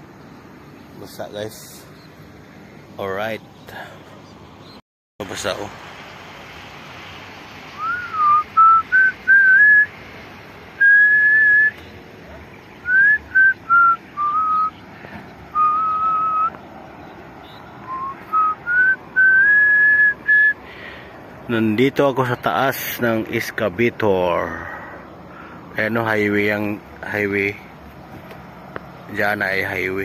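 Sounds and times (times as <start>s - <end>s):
person whistling a tune: 7.8s - 9.9s, 10.8s - 11.8s, 12.9s - 14.7s, 15.6s - 16.5s, 17.8s - 20.6s.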